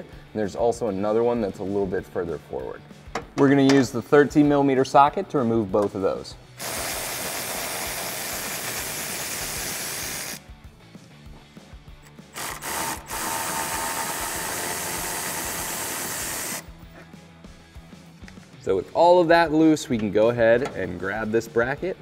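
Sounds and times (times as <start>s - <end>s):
electric ratchet motor whir: 6.6s - 10.4s, 12.3s - 16.7s.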